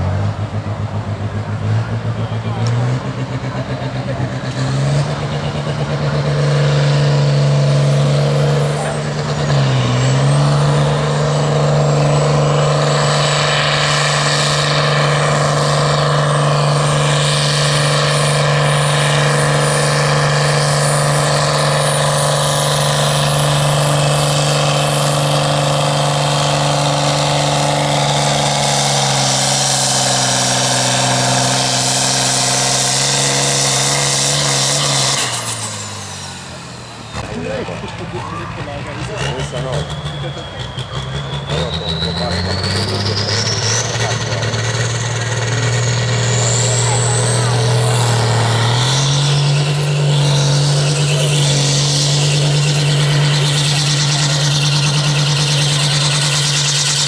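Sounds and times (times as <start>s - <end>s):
tractor engine revving: 0.0s - 57.0s
high whistle rising in pitch: 38.1s - 44.3s.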